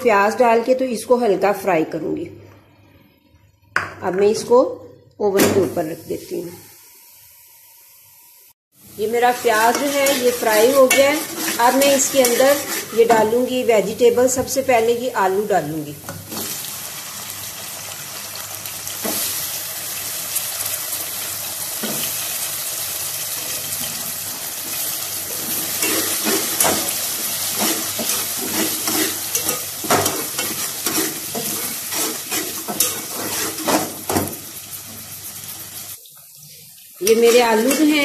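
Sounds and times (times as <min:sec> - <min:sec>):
potatoes sizzling in hot oil: 0:05.9 - 0:38.0
metal spatula scraping pot: 0:09.4 - 0:13.5, 0:24.7 - 0:34.5.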